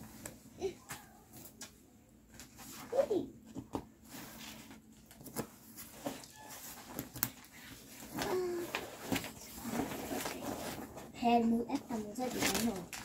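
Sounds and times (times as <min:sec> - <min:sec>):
cloth rustling: 0:04.0 - 0:13.0.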